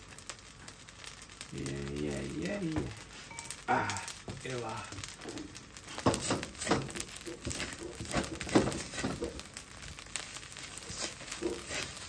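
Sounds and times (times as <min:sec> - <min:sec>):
rice sizzling: 0:00.0 - 0:12.0
spatula scraping wok: 0:05.1 - 0:12.0.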